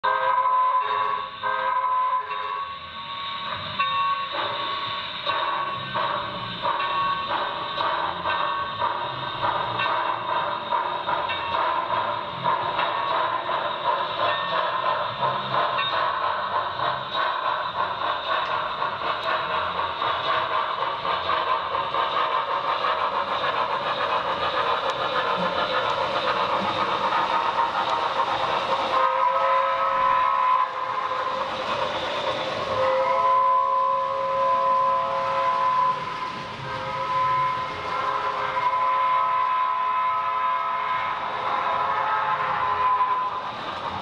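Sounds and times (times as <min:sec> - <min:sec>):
steam whistle blast: 0:00.0 - 0:03.6, 0:28.9 - 0:31.4, 0:32.6 - 0:43.5
model steam locomotive running: 0:00.0 - 0:44.0.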